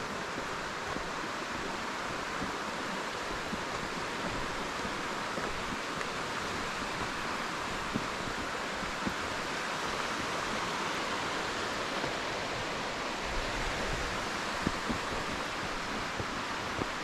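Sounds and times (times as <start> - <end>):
creek water rushing: 0.0 - 17.0.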